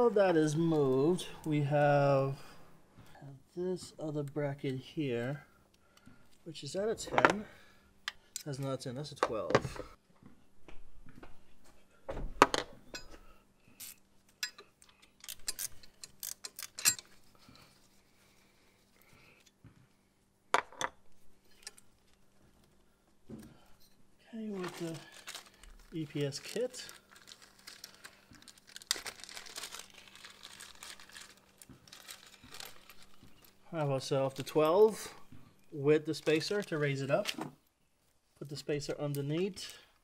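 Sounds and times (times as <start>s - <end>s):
metal tools clinking: 12.9s - 13.2s, 13.8s - 17.2s
plastic bag crinkling: 24.5s - 33.6s.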